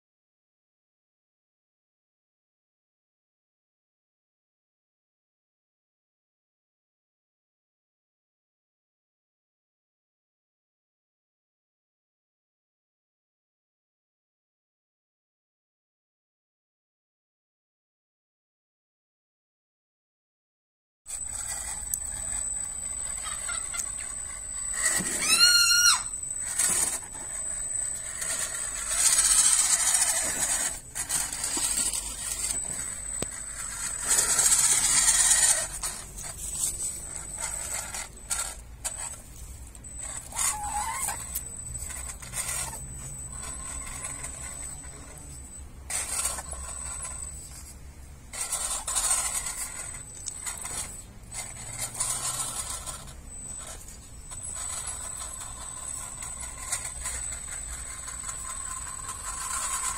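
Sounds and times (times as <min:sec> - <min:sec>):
high whine: 0:21.1 - 0:59.9
rc car motor whirring: 0:21.1 - 0:59.9
tyres scraping: 0:21.1 - 0:59.9.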